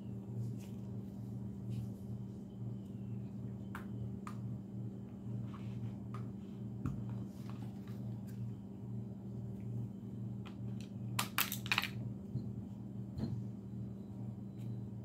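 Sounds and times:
pistol parts clicking: 11.2s - 12.0s.

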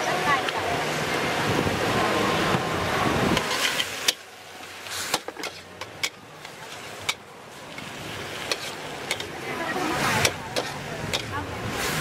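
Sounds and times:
metal spatula scraping a wok: 3.4s - 4.2s, 5.0s - 7.2s, 8.5s - 9.3s.

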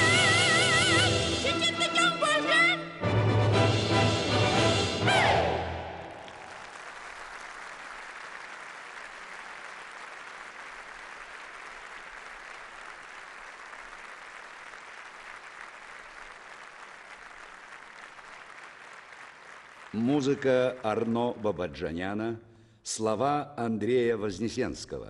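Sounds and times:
audience applauding: 5.6s - 21.9s.

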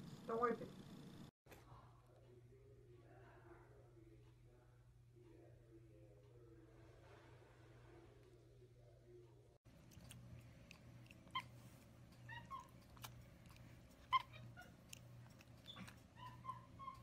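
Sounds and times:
low steady hum: 0.0s - 17.0s
monkey squeaky chirps: 11.2s - 17.0s.

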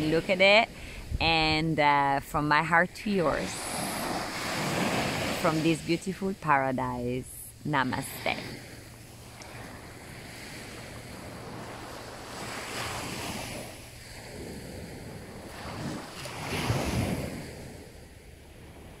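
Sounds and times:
waves washing onto sandy beach: 3.3s - 6.0s, 7.9s - 19.0s.

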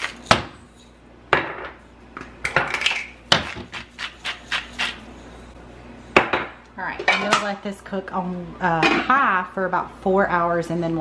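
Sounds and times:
kitchenware knocking and clinking: 1.3s - 1.8s, 6.2s - 7.6s.

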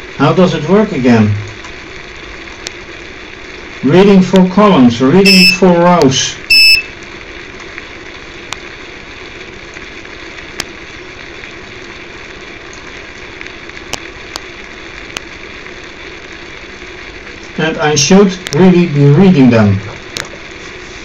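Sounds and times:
background hum and hiss: 0.0s - 21.0s.

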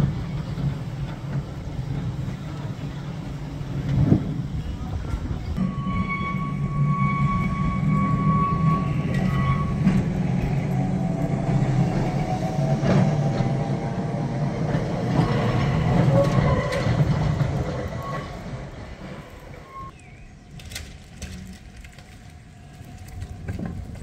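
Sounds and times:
tram wheels rumbling on rails: 0.0s - 24.0s
tram whine: 0.0s - 24.0s.

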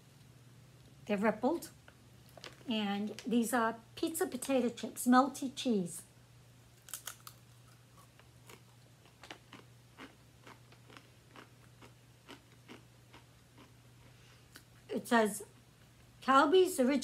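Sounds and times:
potato chip crunching: 6.8s - 13.8s.

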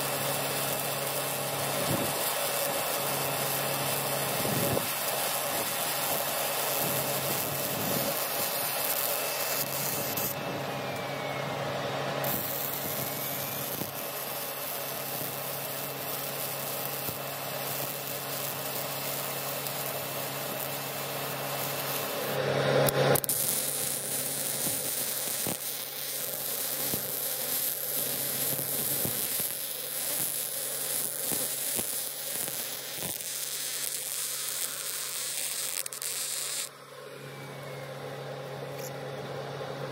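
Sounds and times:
welding arc noise: 0.0s - 36.8s.

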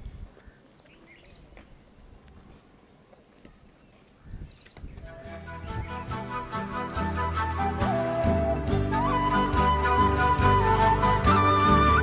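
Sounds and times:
crickets chirping: 0.0s - 5.9s
flute music with low drone: 5.0s - 12.0s.

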